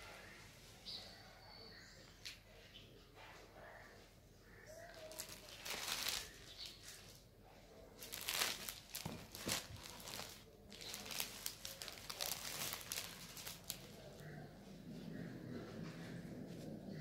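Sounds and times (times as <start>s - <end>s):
silk cloth rustling: 5.0s - 7.1s, 8.0s - 14.0s.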